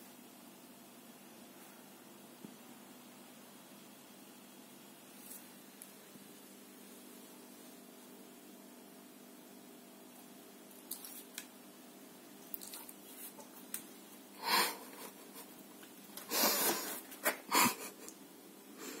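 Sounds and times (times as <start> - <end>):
puppy sniffing and huffing: 16.2 - 17.9.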